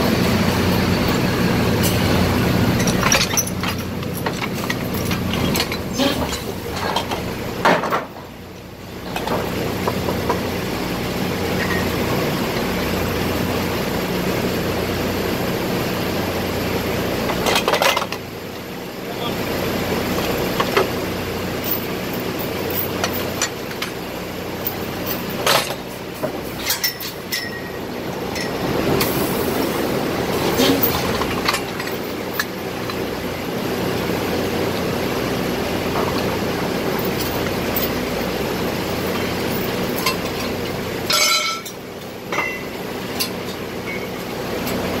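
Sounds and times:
drilling machinery drone: 0:00.0 - 0:45.0
metallic clanks of tools and pipe: 0:02.8 - 0:08.3, 0:09.0 - 0:09.5, 0:11.6 - 0:12.7, 0:17.3 - 0:18.2, 0:22.5 - 0:24.0, 0:24.6 - 0:29.2, 0:30.5 - 0:33.0, 0:39.1 - 0:44.8.

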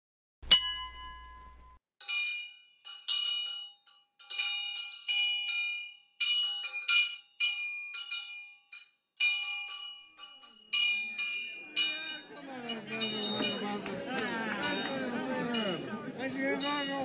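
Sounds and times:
small metal bells ringing: 0:00.5 - 0:17.0.

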